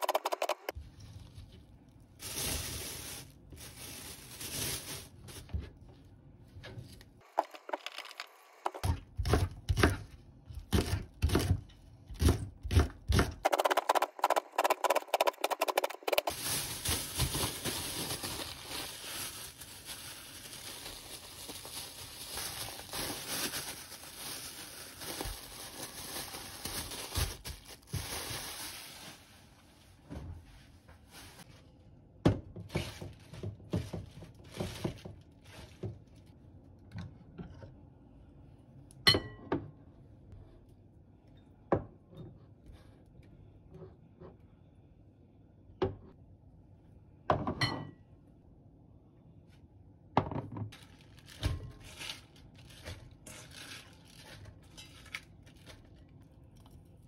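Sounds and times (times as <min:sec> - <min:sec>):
plastic bag crinkling: 0:01.2 - 0:05.6, 0:15.4 - 0:29.4, 0:50.8 - 0:56.0.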